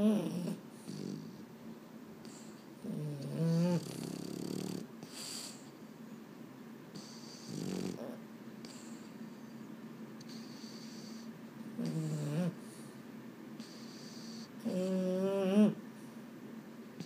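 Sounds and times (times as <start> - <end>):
dog snoring: 0.0 - 1.4, 2.2 - 5.7, 6.9 - 9.5, 10.2 - 12.9, 13.6 - 15.8
breathy snorts: 2.2 - 5.7, 7.0 - 9.2, 10.2 - 12.9, 13.6 - 15.2.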